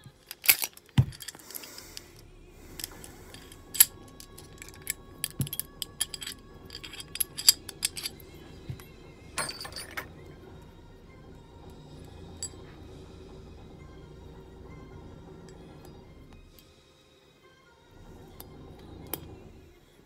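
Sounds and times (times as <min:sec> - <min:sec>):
pistol metal clicks and clinks: 0:00.0 - 0:02.0, 0:02.8 - 0:08.8
metal parts rattling: 0:00.0 - 0:10.8.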